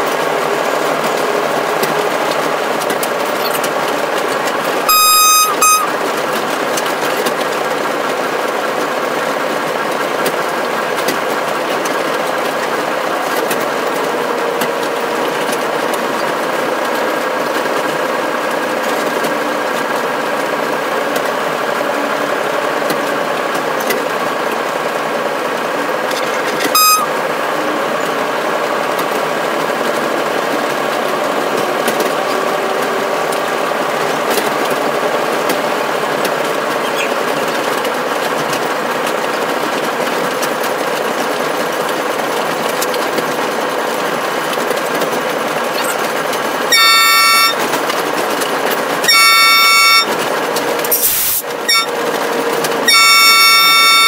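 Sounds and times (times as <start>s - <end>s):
locomotive engine drone: 0.0s - 54.0s
locomotive horn: 4.8s - 6.2s, 25.8s - 28.1s, 46.6s - 48.0s, 49.0s - 54.0s.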